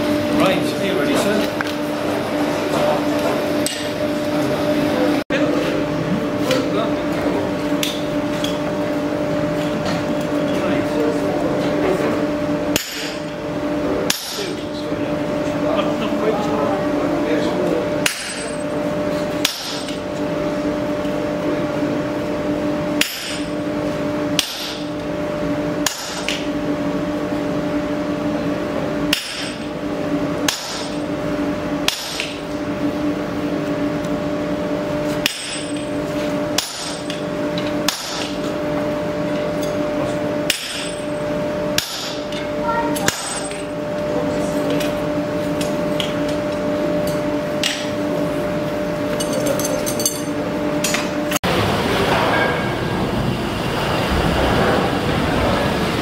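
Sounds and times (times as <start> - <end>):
steady hum: 0.0 - 56.0
hammer ringing on anvil: 12.7 - 13.2, 14.1 - 14.6, 43.0 - 43.7.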